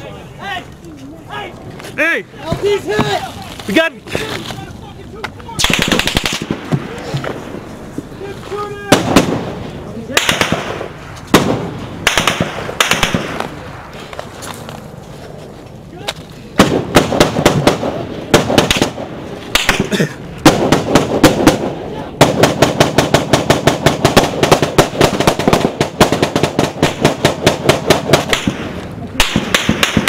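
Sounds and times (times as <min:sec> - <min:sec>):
small-arms gunfire: 0:05.6 - 0:06.9, 0:10.2 - 0:13.5, 0:16.6 - 0:30.0.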